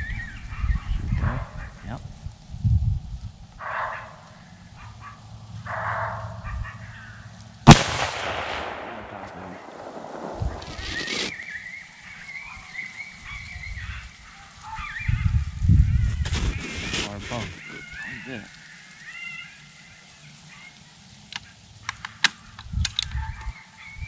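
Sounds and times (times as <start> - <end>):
gunshot with echo: 7.7 - 11.3
wavering animal calls: 12.1 - 20.8.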